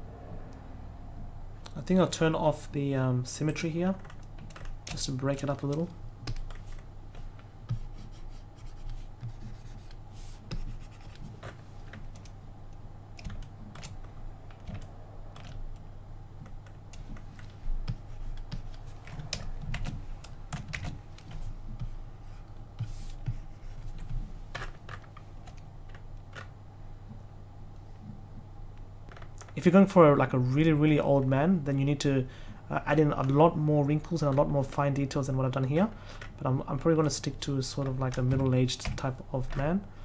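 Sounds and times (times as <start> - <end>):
steady low hum: 0.0 - 40.0
keyboard and mouse clicks: 3.9 - 21.9.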